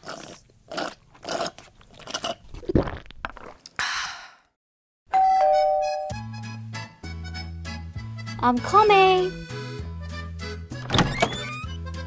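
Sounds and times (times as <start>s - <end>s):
two-tone doorbell chime: 5.1s - 6.3s.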